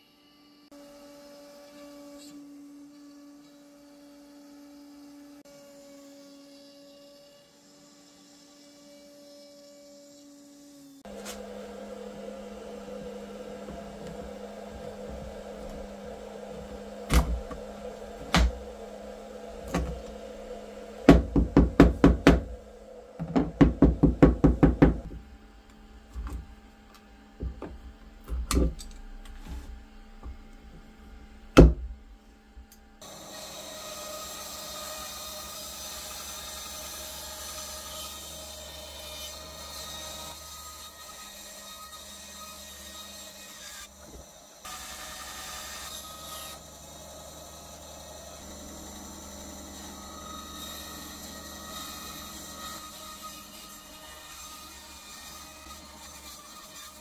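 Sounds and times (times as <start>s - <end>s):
bandsaw running: 1.1s - 31.6s, 33.0s - 57.0s
steady low hum: 11.1s - 33.0s
wooden board knocking: 23.2s - 25.1s.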